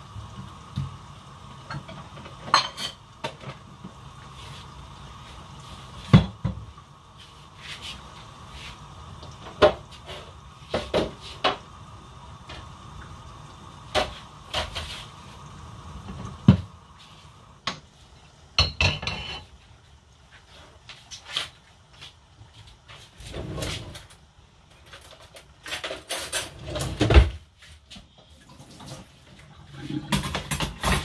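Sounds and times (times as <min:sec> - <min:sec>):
kitchenware clattering: 0:01.7 - 0:03.6, 0:18.6 - 0:19.6, 0:29.8 - 0:31.0.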